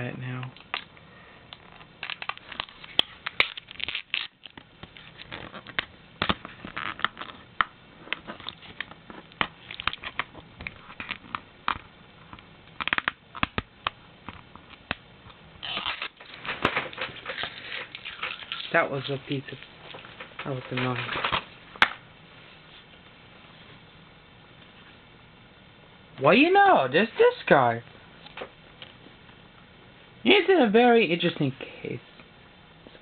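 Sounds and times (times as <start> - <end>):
plastic shrink-wrap crinkling: 1.6 - 7.5, 15.6 - 21.5.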